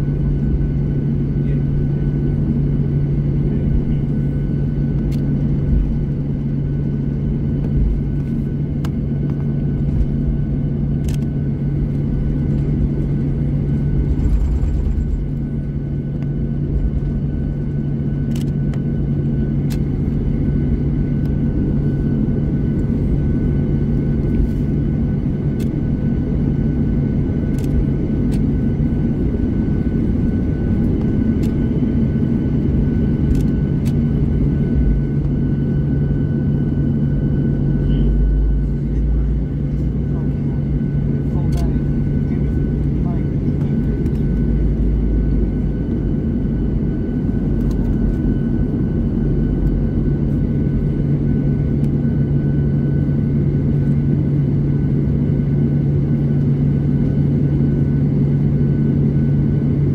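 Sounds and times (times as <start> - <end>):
aircraft engine drone: 0.0 - 59.9
low rumble: 9.1 - 18.4, 19.7 - 51.3.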